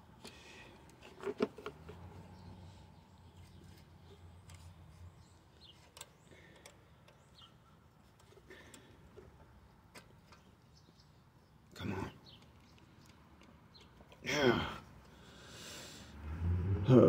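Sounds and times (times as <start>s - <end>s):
faint clicks of carburetor linkage: 5.9s - 7.2s.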